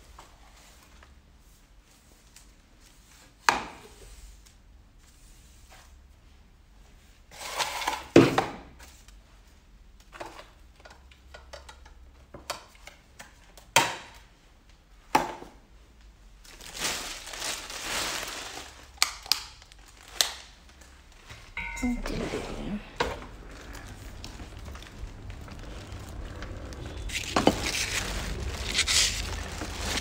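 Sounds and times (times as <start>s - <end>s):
rustling: 16.4s - 19.0s, 22.9s - 30.0s.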